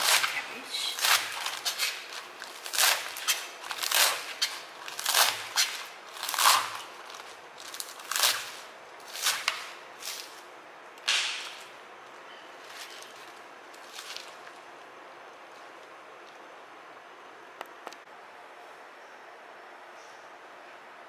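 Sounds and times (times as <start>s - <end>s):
knife chopping cabbage on cutting board: 0.0s - 10.4s.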